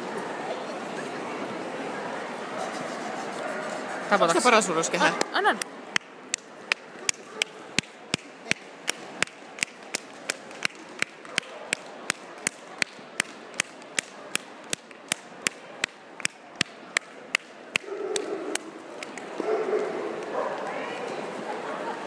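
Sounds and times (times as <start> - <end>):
faint murmur of a hall: 0.0 - 22.0
person clapping hands: 5.2 - 19.3.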